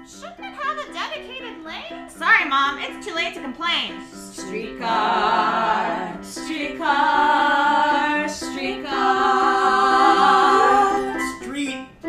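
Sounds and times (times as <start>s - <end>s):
musical accompaniment: 0.0s - 12.0s
chorus singing held notes: 4.2s - 11.9s.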